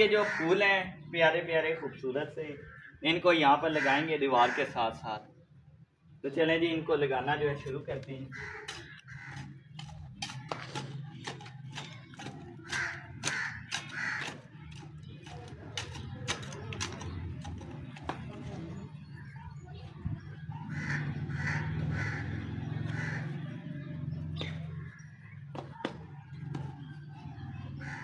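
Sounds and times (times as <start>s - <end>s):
crow cawing: 0.0s - 0.7s, 2.6s - 3.0s, 3.6s - 5.0s, 8.2s - 10.6s, 11.8s - 14.9s, 20.6s - 25.4s, 27.8s - 28.0s.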